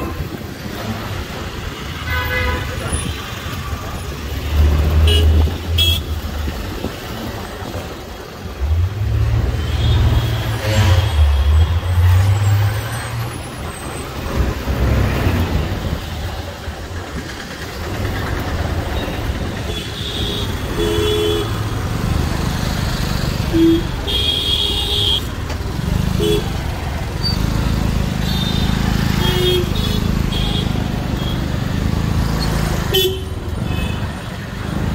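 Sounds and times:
horn toots: 9.6 - 11.7
motorbike engine and road rumble: 13.5 - 34.9.

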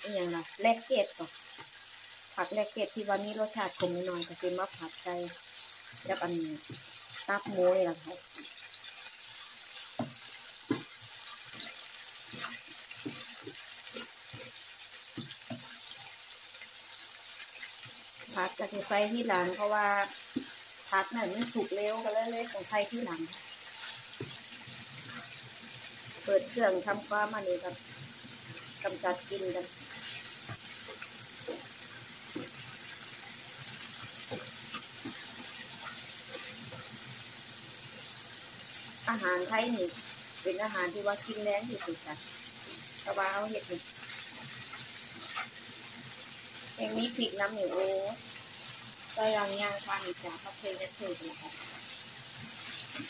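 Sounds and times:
meat sizzling in oil: 0.0 - 53.0
spatula scraping and knocking pan: 9.7 - 16.2, 23.0 - 25.4, 29.7 - 37.0, 43.9 - 45.7, 51.0 - 53.0.

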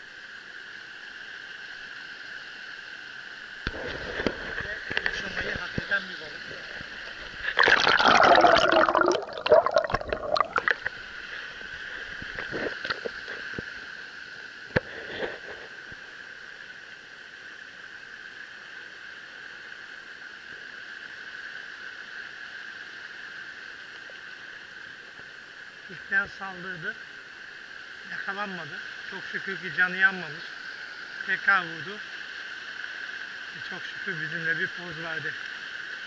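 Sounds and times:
stream rushing: 3.7 - 13.1
fish splashing in water: 6.7 - 13.3.

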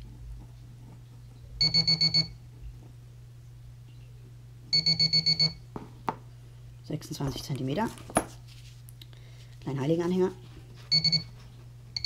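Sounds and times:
rapid high beeps: 10.9 - 11.3.

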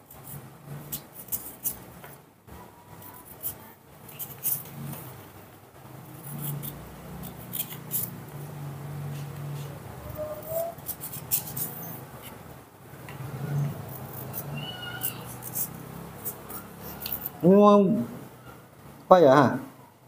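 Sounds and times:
baby monkey calling: 10.0 - 10.9, 14.4 - 15.7
knife slicing a pear: 10.5 - 12.4.

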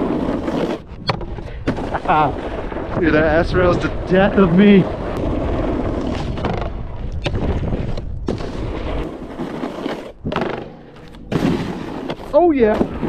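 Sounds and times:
snowboard scraping over snow: 0.0 - 13.0
wind buffeting microphone: 1.0 - 9.1.

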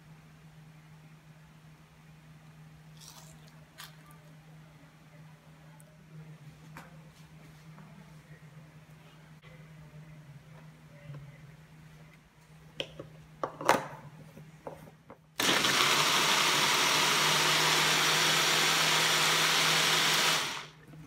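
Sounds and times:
blender motor running: 15.4 - 20.8.

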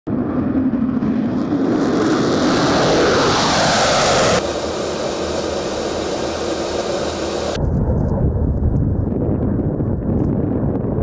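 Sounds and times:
fighter jet passing: 0.1 - 8.4.

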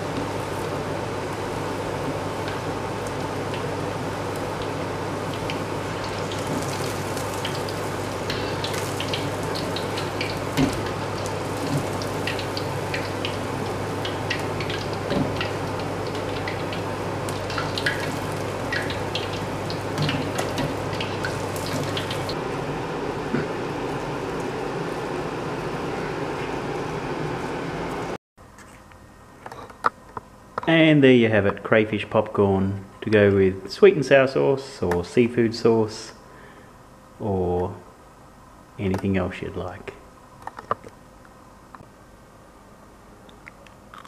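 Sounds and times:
food deep-frying in oil: 0.0 - 22.5
low steady hum: 0.0 - 44.0.

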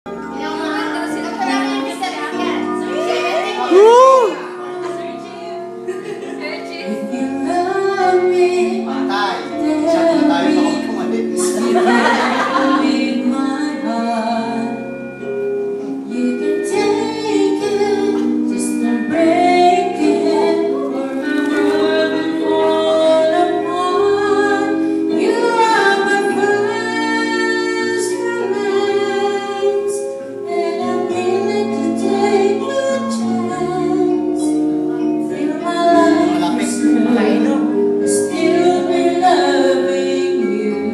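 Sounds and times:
instrumental accompaniment: 0.1 - 40.9
woman singing into microphone: 6.7 - 14.9, 16.0 - 40.9.

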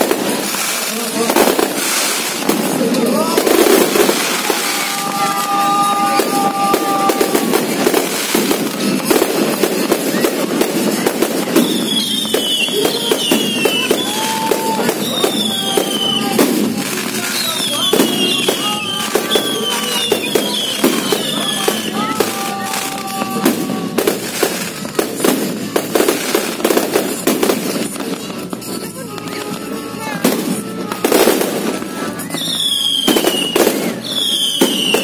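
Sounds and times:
fireworks bangs and crackling: 0.0 - 35.0
fireworks whistles falling in pitch: 0.0 - 35.0.

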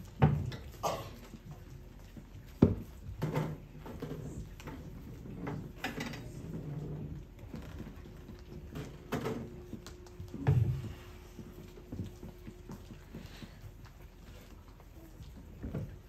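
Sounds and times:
soft knocks and shuffling: 1.3 - 16.0.

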